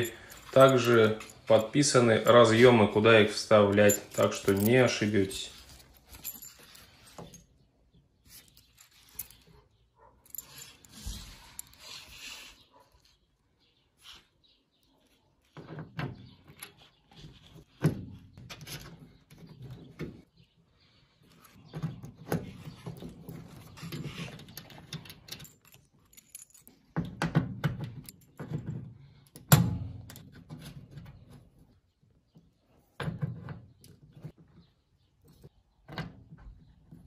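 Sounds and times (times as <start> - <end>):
metal connectors clicking and rattling: 0.0 - 7.5, 8.2 - 9.6, 10.2 - 12.1, 21.3 - 31.5.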